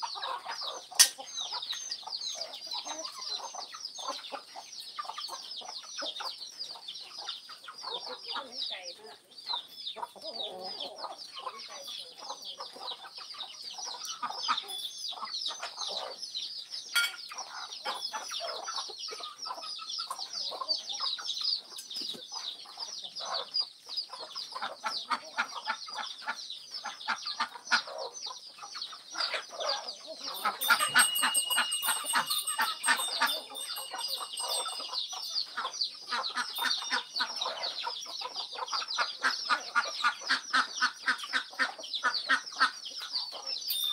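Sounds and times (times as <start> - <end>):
chickens clucking: 0.0 - 43.9
high falling chirps: 30.3 - 35.6.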